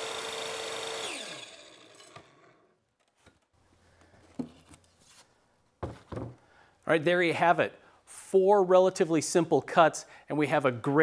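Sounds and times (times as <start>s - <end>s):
circular saw winding down: 0.0s - 2.7s.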